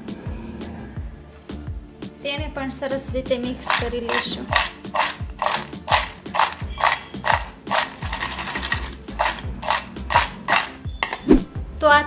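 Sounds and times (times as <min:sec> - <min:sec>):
faint background music: 0:00.0 - 0:12.0
banana chips rattling in plastic bowl: 0:03.6 - 0:11.2.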